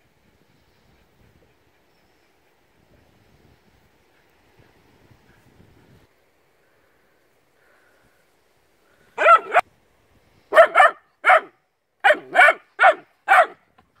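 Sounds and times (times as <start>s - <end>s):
puppy barking: 9.2s - 9.6s, 10.5s - 13.6s.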